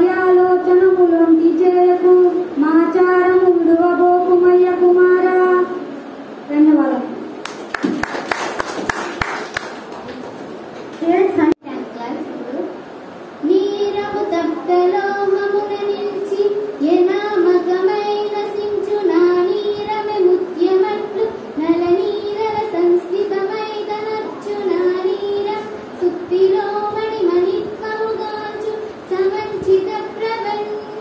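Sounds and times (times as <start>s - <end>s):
child singing: 13.4s - 31.0s.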